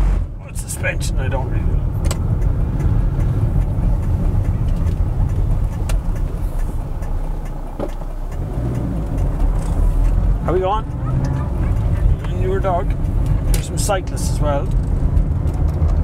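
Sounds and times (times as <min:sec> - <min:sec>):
car engine rumbling: 0:00.0 - 0:16.0
road noise: 0:00.0 - 0:16.0.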